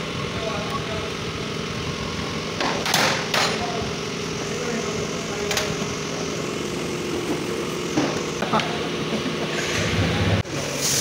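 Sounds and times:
mechanical hum: 0.0 - 11.0
hissing bursts: 10.6 - 11.0.

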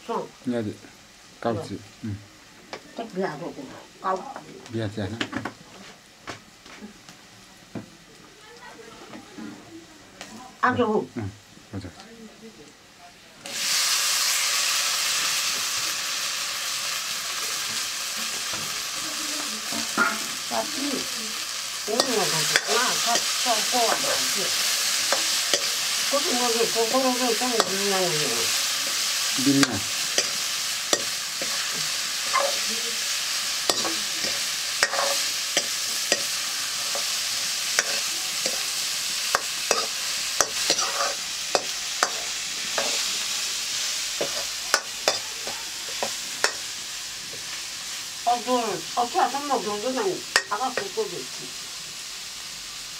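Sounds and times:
vegetables sizzling in oil: 0.0 - 52.9
metal ladle scraping a wok: 27.5 - 45.2.

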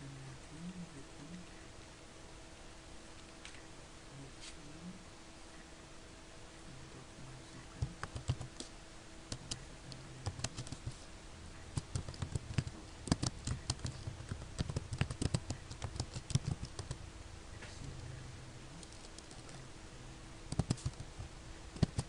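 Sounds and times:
faint low hum: 0.0 - 22.0
keyboard typing: 7.8 - 8.7, 9.3 - 11.0, 11.7 - 17.0, 18.8 - 19.6, 20.5 - 22.0.

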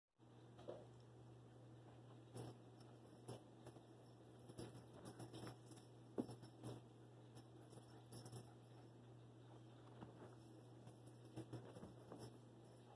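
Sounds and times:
low steady hum: 0.2 - 12.9
dog paws scrambling over carpet: 4.4 - 12.9.

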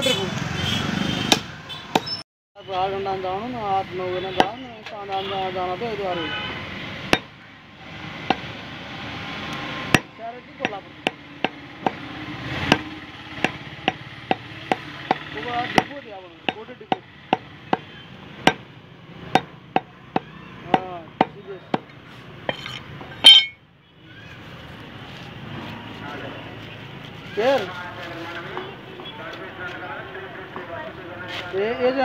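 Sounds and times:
cleaver chopping bone on wood: 1.3 - 2.1, 9.9 - 18.6, 19.3 - 21.9
loud metallic clank: 22.5 - 23.6
faint voices: 24.0 - 32.0.

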